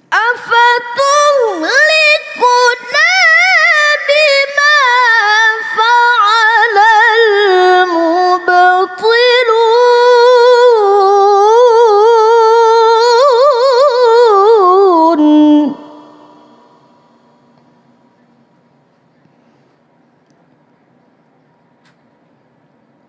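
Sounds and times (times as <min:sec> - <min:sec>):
woman reciting melodically: 0:00.0 - 0:17.5.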